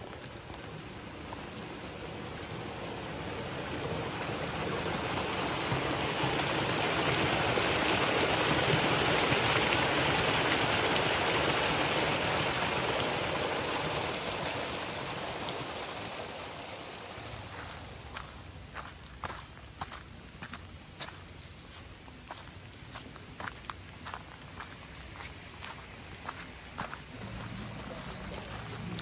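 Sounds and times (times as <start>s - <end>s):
forest stream rushing: 0.0s - 29.0s.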